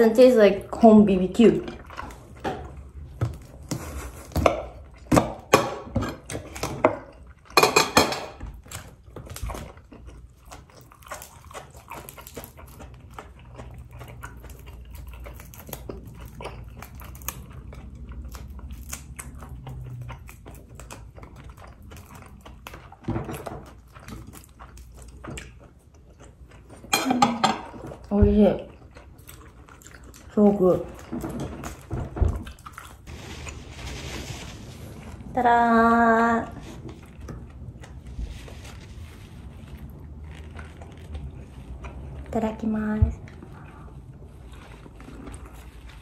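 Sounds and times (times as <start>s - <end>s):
dishes and cutlery clattering: 7.6s - 8.4s, 26.9s - 27.8s.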